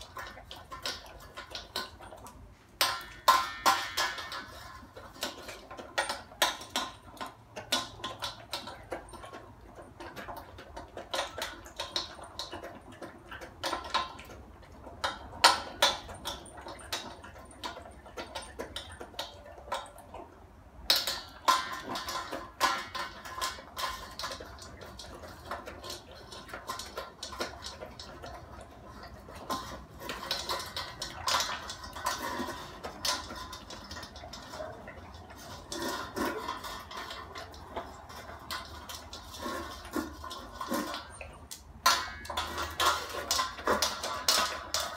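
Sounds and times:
dog crunching kibble: 0:00.0 - 0:44.9
kibble clattering in metal bowl: 0:00.0 - 0:44.9.

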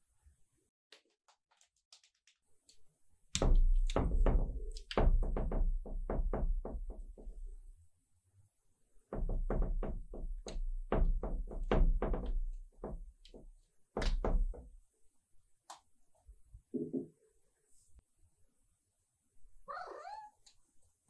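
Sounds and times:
cat paws knocking against mirror: 0:03.4 - 0:07.4, 0:09.1 - 0:14.7.

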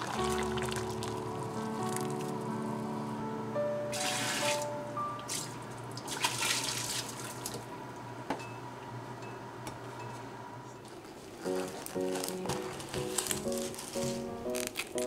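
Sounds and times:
water splashing into metal sink: 0:05.3 - 0:07.6.

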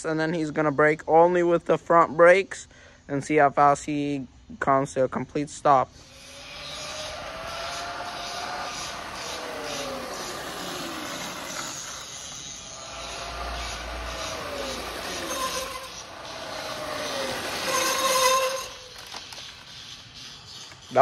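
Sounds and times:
tyre hiss on road: 0:05.9 - 0:21.0
electric dirt bike motor whining: 0:06.0 - 0:19.9.

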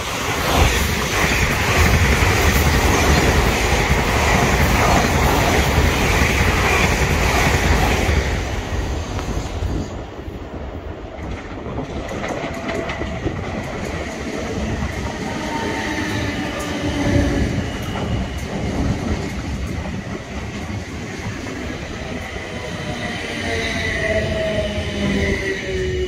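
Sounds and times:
train wheels rumbling on rails: 0:00.0 - 0:26.0
faint rail clicking: 0:11.1 - 0:15.2.

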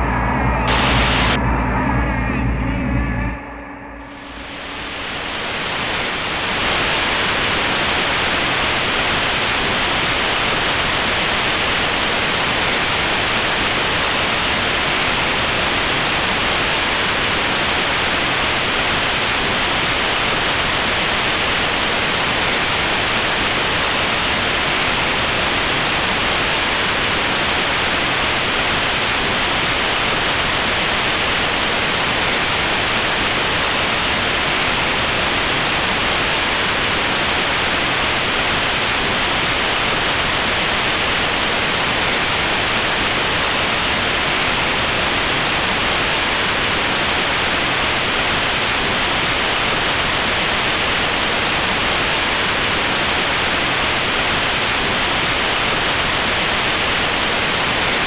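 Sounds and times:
static hiss: 0:03.9 - 0:14.0.

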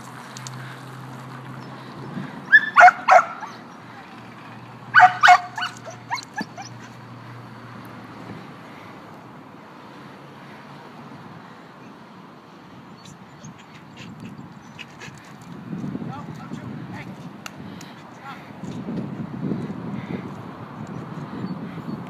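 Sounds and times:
dog yelping: 0:02.5 - 0:03.7, 0:04.9 - 0:07.0.

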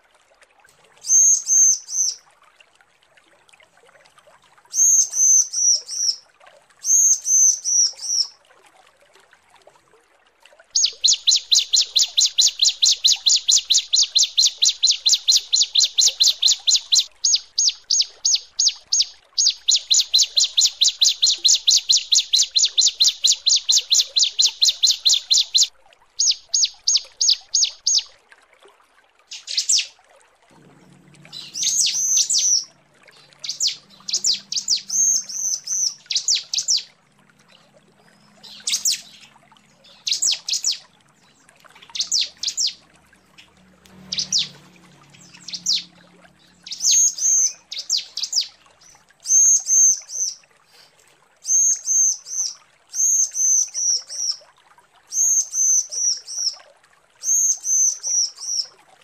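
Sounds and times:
bird calling with sharp repeated notes: 0:01.0 - 0:02.2, 0:04.7 - 0:06.2, 0:06.8 - 0:08.3, 0:10.8 - 0:28.1, 0:29.3 - 0:29.9, 0:31.3 - 0:36.9, 0:38.4 - 0:40.8, 0:41.8 - 0:42.8, 0:43.4 - 0:50.4, 0:51.4 - 0:54.4.

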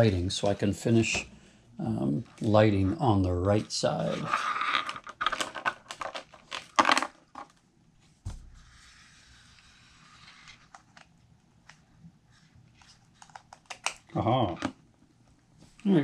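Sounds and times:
dull thump: 0:08.2 - 0:08.7.

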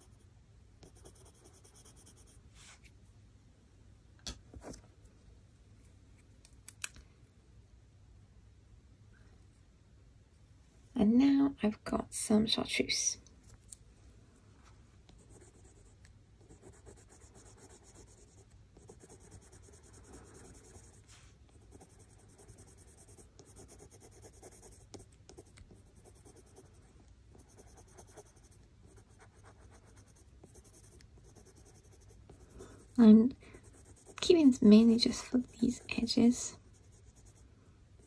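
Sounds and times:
coloured pencil scratching on paper: 0:00.8 - 0:02.4, 0:15.2 - 0:33.0, 0:33.6 - 0:37.4.

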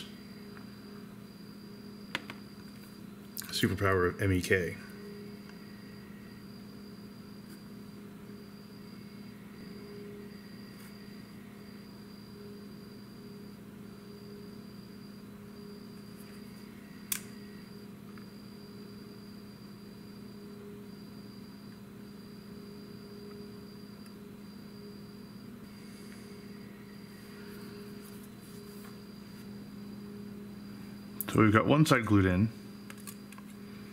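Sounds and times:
low room hum: 0:00.0 - 0:33.9
sharp click: 0:17.1 - 0:17.4.

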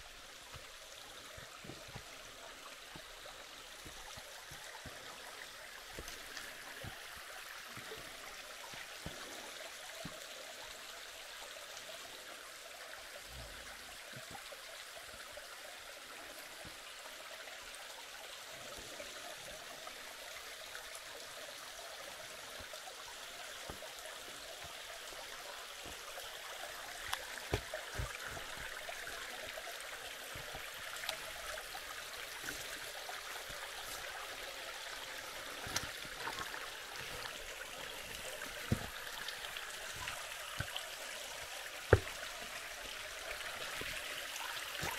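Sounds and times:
creek water flowing: 0:00.0 - 0:44.9.

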